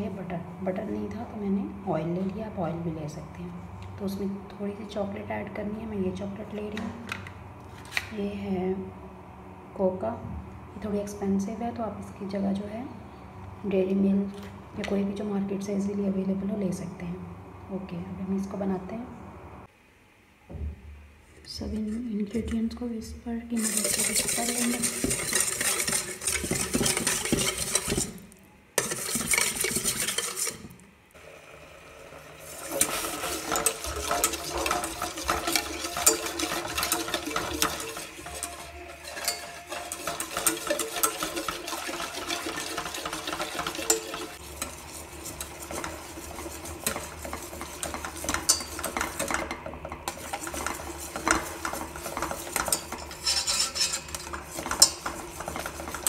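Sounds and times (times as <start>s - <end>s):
whisk clinking against steel pan: 23.6s - 28.2s, 28.8s - 30.7s, 32.6s - 56.0s.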